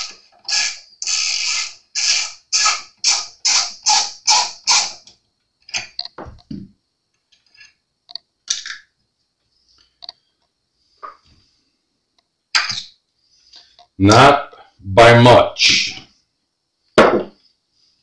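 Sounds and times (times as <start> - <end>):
screwdriver turning screw creaking: 0.0 - 5.0
dull knock of tools set down: 6.2 - 6.7, 17.0 - 17.4.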